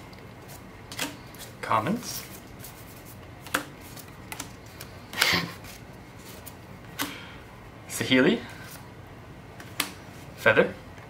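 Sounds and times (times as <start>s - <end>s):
cards being flipped: 2.2s - 7.1s.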